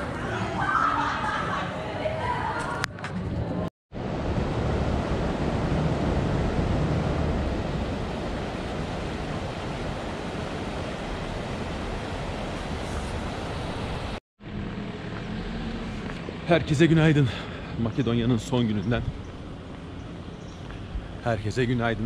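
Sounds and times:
river water rushing: 4.0s - 14.2s.

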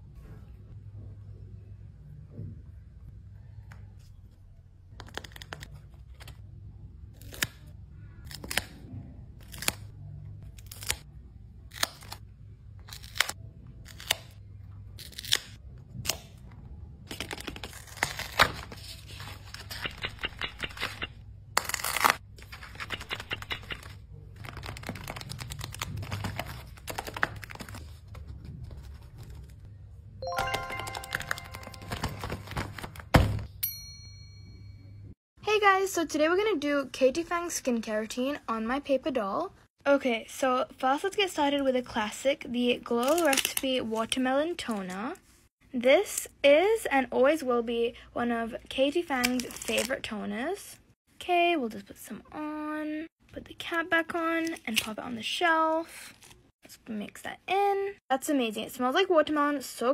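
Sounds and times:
paper crinkling and rustling: 17.1s - 29.7s, 30.8s - 33.2s
short tune of pitched tones: 30.2s - 32.4s
background music: 30.2s - 32.6s.

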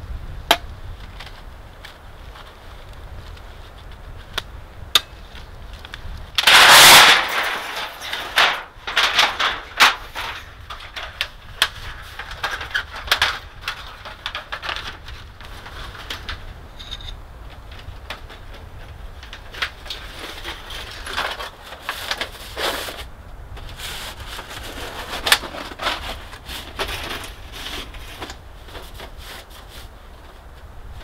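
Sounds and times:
metal pipe clinks and knocks: 16.7s - 17.2s
metal pipe sliding scrape: 16.7s - 17.2s.

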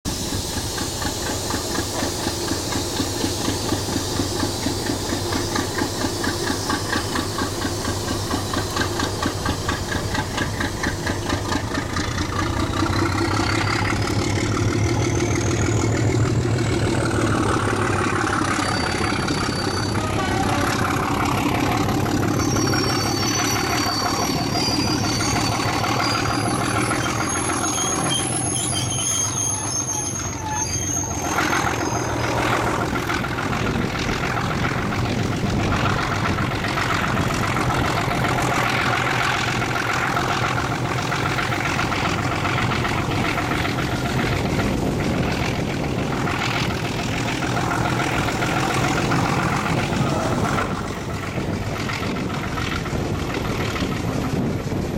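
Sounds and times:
diesel locomotive engine working hard: 0.0s - 54.9s
short high squeals: 3.5s - 33.1s.

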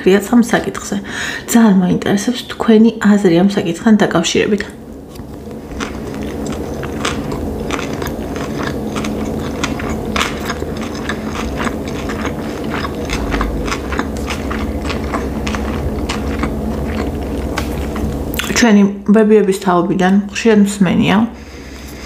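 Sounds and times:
steady low hum: 0.0s - 22.0s
close chewing mouth clicks: 5.7s - 18.5s.

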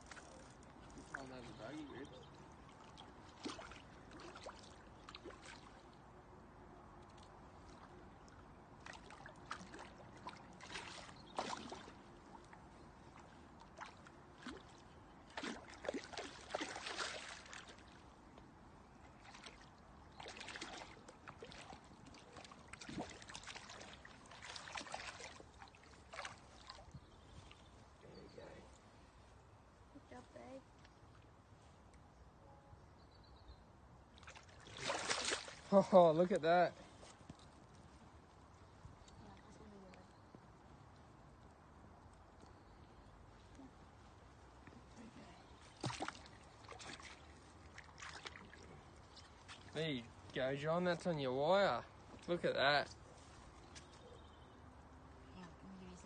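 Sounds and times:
fish splashing in water: 8.8s - 12.1s, 13.7s - 18.0s, 19.2s - 26.9s, 34.2s - 35.7s, 45.6s - 49.7s.

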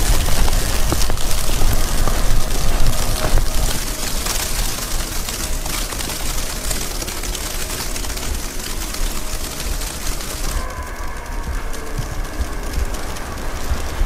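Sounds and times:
gusty wind buffeting microphone: 0.0s - 5.6s, 10.4s - 14.0s.

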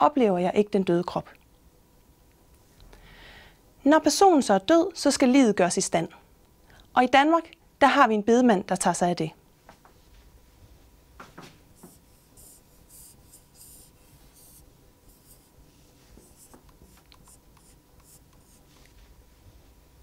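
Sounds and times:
marker pen on whiteboard: 11.3s - 19.1s.

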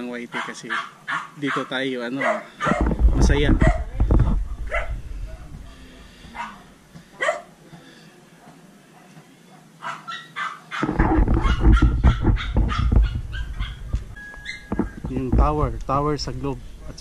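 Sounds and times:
dog barking: 0.3s - 3.0s, 3.6s - 3.9s, 4.7s - 5.0s, 6.3s - 7.6s, 8.4s - 14.6s
low rumble on microphone: 2.7s - 6.8s, 10.8s - 17.0s.

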